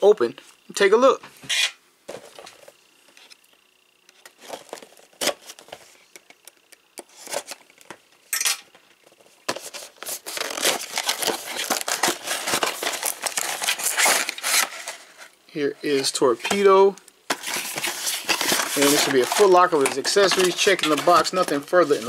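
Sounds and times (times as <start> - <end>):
cardboard rustling and scraping: 1.4 - 3.4, 4.2 - 6.1, 7.0 - 7.7, 9.0 - 15.3, 15.9 - 22.0.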